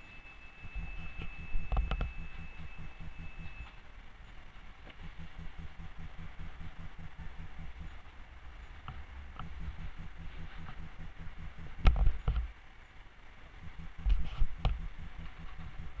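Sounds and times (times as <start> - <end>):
tram rumbling: 0.0 - 12.3.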